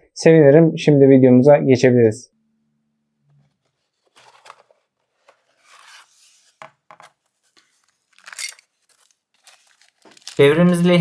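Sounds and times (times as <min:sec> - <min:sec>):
cardboard flaps scraping: 0:03.5 - 0:08.1.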